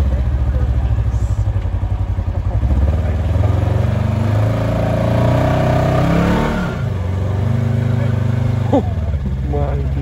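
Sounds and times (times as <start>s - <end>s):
engine revving under load: 2.3s - 10.0s.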